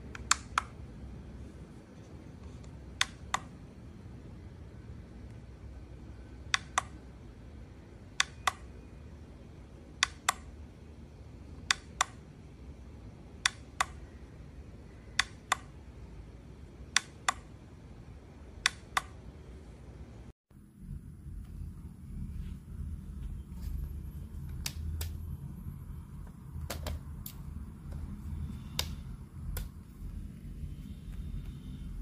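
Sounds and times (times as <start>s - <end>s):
scale buttons clicking: 0.1s - 0.8s, 2.4s - 3.6s, 6.4s - 7.0s, 8.1s - 8.8s, 10.0s - 10.6s, 11.6s - 12.2s, 15.2s - 15.8s, 16.9s - 17.6s, 18.6s - 19.2s, 24.4s - 25.3s, 26.3s - 32.0s.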